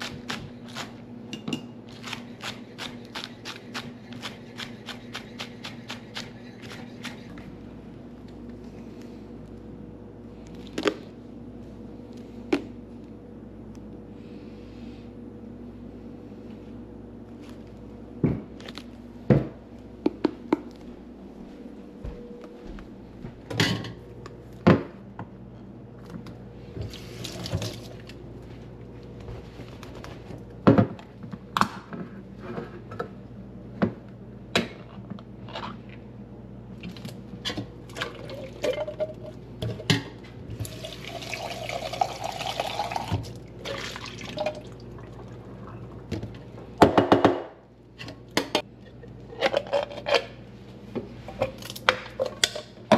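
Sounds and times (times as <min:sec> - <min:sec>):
kitchen knocks and clatters: 0:23.5 - 0:24.0.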